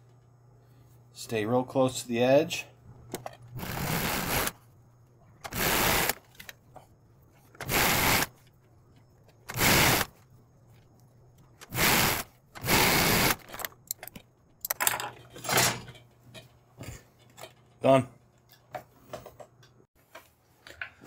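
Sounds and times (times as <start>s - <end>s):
faint steady hum: 0.0s - 21.0s
sewing machine stitching: 3.6s - 4.6s, 9.5s - 10.1s, 11.6s - 13.5s.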